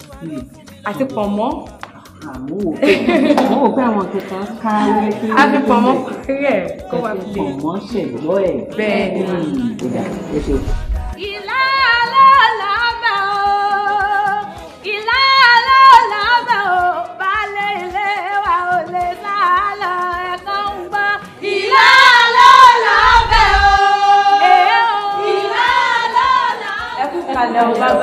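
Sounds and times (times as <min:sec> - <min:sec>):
women singing together: 0:11.0 - 0:28.0.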